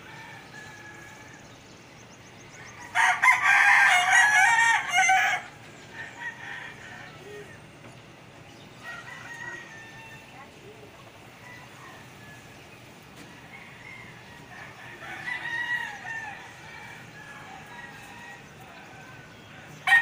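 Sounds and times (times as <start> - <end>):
rooster crowing: 0.0 - 1.5, 2.6 - 7.6, 8.8 - 10.4, 13.3 - 20.0.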